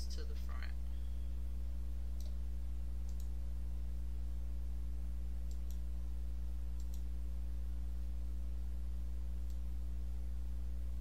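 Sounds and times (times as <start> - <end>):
low electrical hum: 0.0 - 11.0
computer mouse clicking: 2.2 - 2.4, 3.0 - 3.3, 5.4 - 5.8, 6.8 - 7.1.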